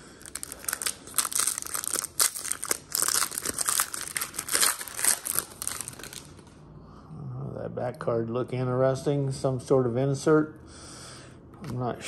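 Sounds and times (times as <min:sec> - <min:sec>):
foil wrapper tearing and crinkling: 0:00.2 - 0:06.4.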